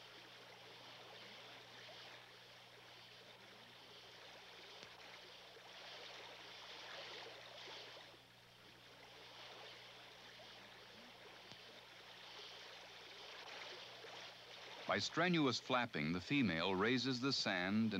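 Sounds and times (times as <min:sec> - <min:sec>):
low electrical hum: 0:00.0 - 0:17.9
stream rushing over gravel: 0:09.0 - 0:17.9.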